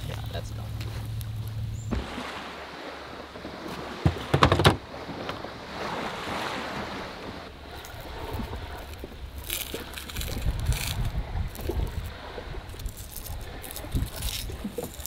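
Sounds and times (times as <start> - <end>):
waves washing against shore and hull: 0.0 - 15.0
knocks and clatters in a boat: 3.1 - 9.1.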